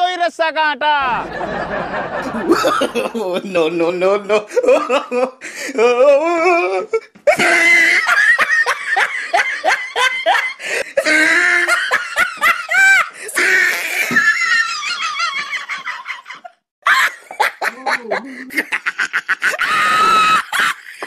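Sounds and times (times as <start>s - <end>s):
people laughing heartily: 1.0s - 3.4s, 4.4s - 5.4s, 7.3s - 13.2s, 14.0s - 21.0s.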